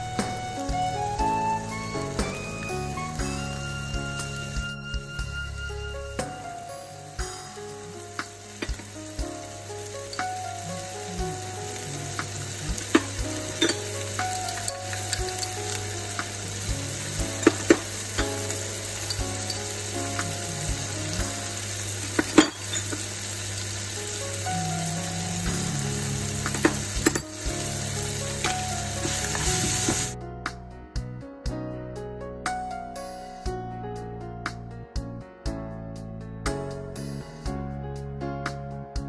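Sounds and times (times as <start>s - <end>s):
food sizzling in oil: 0.0s - 30.2s.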